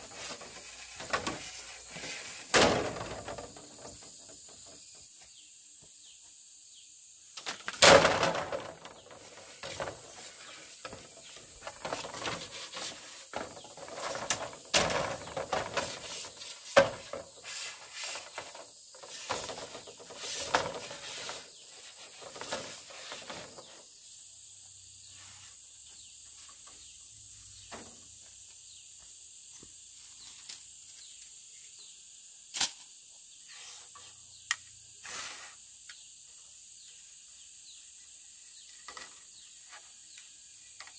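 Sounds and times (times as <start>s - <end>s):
knocks and rustles of handling: 0.0s - 6.0s, 7.4s - 23.9s.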